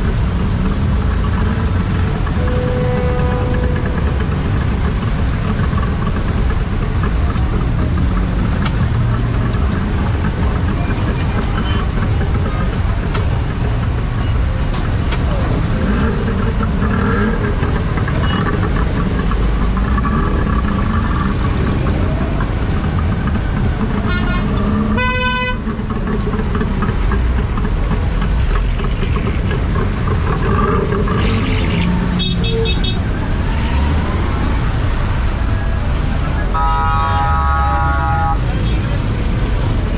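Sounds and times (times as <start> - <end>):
vehicle engines rumbling: 0.0 - 39.9
car horns honking: 2.0 - 5.4, 23.9 - 25.8, 30.6 - 33.1, 36.4 - 38.8.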